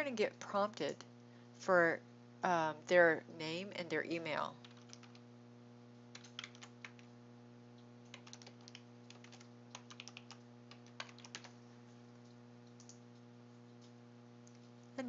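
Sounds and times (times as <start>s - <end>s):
low electrical hum: 0.0s - 15.0s
computer keyboard typing: 4.6s - 5.2s, 6.1s - 7.1s, 8.1s - 11.6s, 12.7s - 13.0s.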